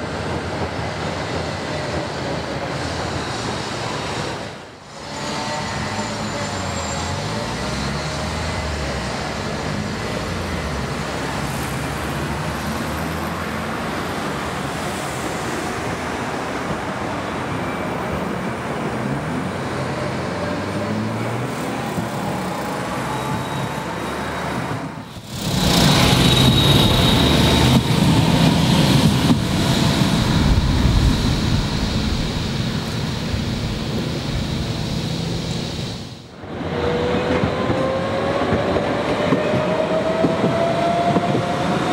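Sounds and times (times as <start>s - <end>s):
road traffic: 0.0s - 41.9s
tram rumbling on rails: 0.0s - 41.9s.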